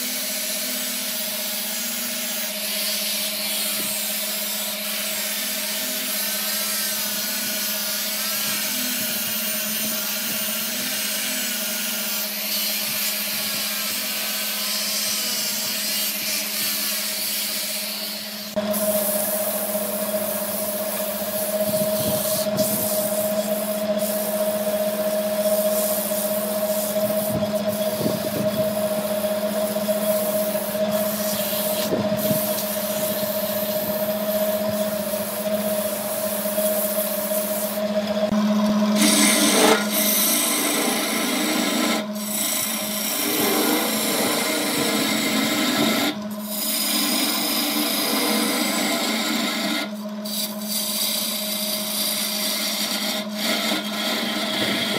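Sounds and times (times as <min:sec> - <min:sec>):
gouge scraping wood on lathe: 0:00.0 - 0:54.9
sandpaper rubbing spinning wood: 0:00.0 - 0:54.9
wood lathe humming: 0:00.0 - 0:54.9.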